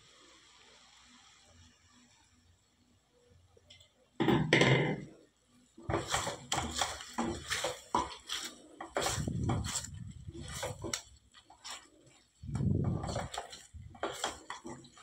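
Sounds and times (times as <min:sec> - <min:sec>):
spatula scraping in a pan: 0:05.8 - 0:15.0.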